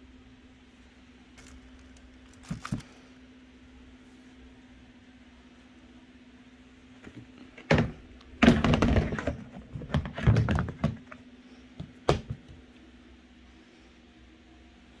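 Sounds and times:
plastic lid knocks and clatter: 7.6 - 11.1, 11.8 - 12.5.

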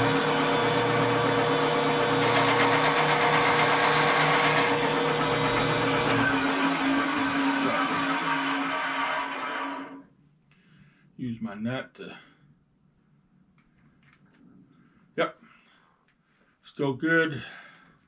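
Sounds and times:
power tool motor running: 0.0 - 10.0.

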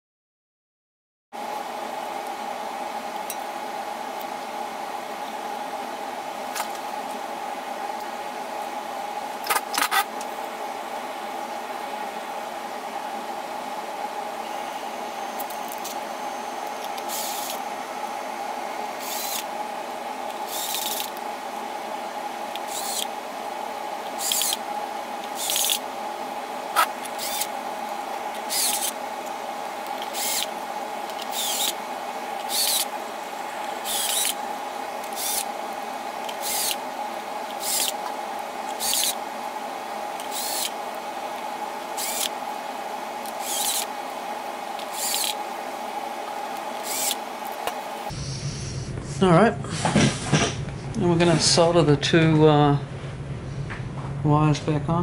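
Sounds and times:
cordless drill whining: 16.9 - 17.6, 19.0 - 19.5, 20.4 - 21.2, 22.5 - 23.1, 24.1 - 24.6, 25.2 - 25.8, 26.8 - 27.6, 28.4 - 29.0, 29.8 - 30.5, 31.1 - 31.8, 32.4 - 32.9, 33.8 - 34.4, 35.0 - 35.5, 36.2 - 36.8, 37.5 - 38.0, 38.7 - 39.2, 40.2 - 40.8, 41.9 - 42.4, 43.2 - 43.9, 44.8 - 45.4, 46.6 - 47.2.

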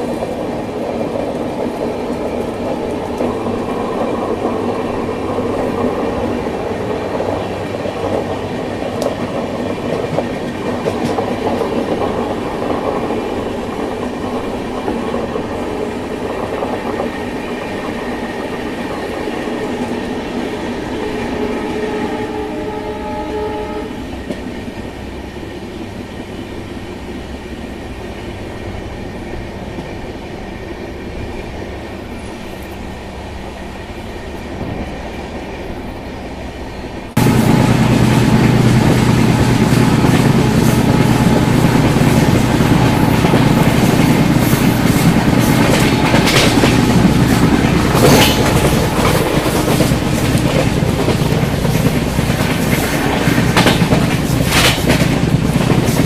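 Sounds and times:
train wheels rumbling and clacking: 0.0 - 56.0
train horn: 20.9 - 24.2, 37.2 - 50.1.

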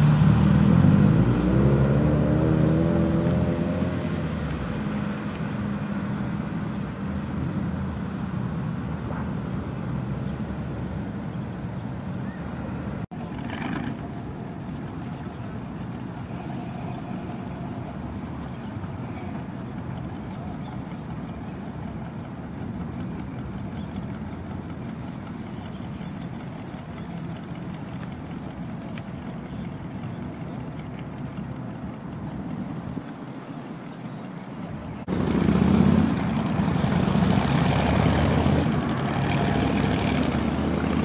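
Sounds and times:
truck engine running at low revs: 0.0 - 41.0.

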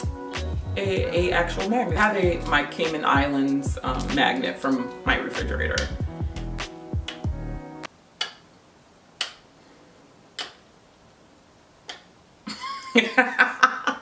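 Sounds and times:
background music: 0.0 - 7.9
person speaking: 0.7 - 6.1.

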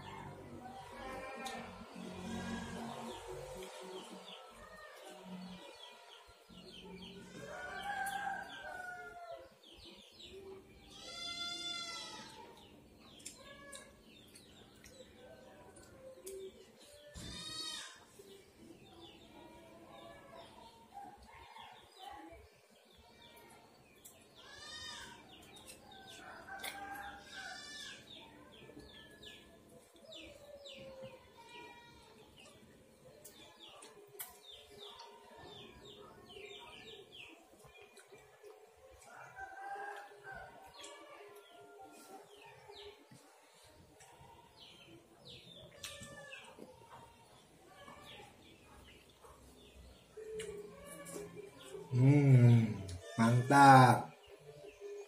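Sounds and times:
chewing: 25.4 - 27.6, 32.1 - 35.3, 37.3 - 42.4, 45.6 - 51.8.

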